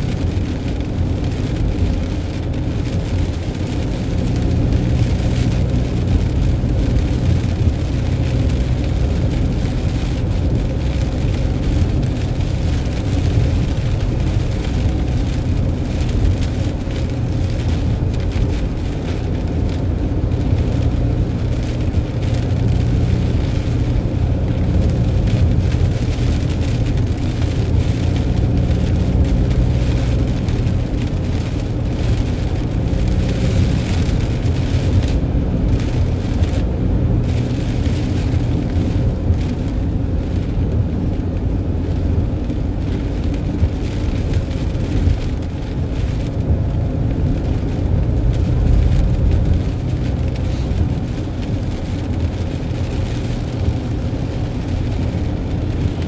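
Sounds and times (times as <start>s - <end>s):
engine and tyres rumbling: 0.0s - 56.0s
rain and spray hissing: 0.0s - 56.0s.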